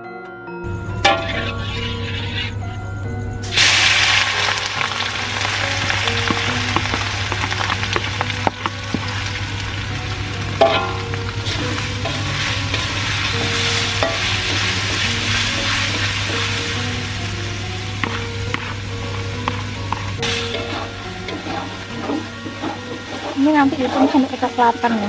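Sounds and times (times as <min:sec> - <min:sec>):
metal spoon scraping wok: 0:01.1 - 0:02.6, 0:10.6 - 0:17.4, 0:18.0 - 0:25.0
paste sizzling in hot oil: 0:03.4 - 0:25.0.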